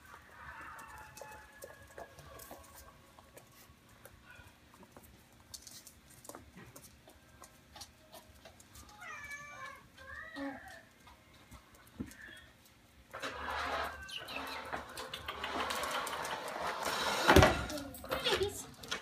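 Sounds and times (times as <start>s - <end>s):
puppies scrabbling on wooden floor: 0.0s - 19.0s
soft squeaks: 13.2s - 18.6s.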